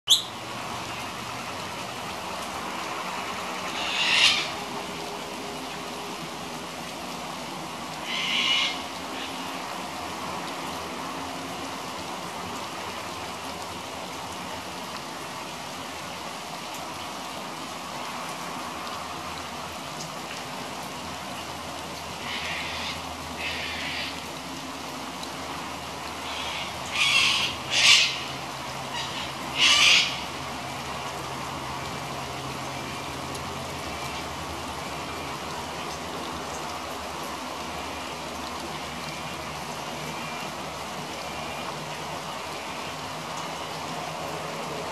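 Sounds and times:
steady rain: 0:00.1 - 0:44.9
cockatoo screeching: 0:03.8 - 0:04.5, 0:08.0 - 0:08.8, 0:26.3 - 0:28.3, 0:29.0 - 0:30.2.

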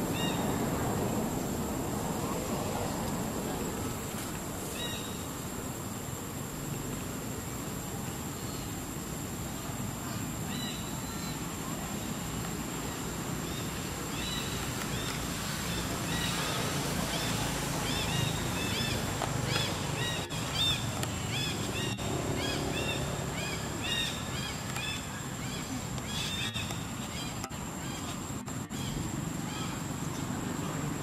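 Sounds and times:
small birds chirping: 0:09.5 - 0:31.0.

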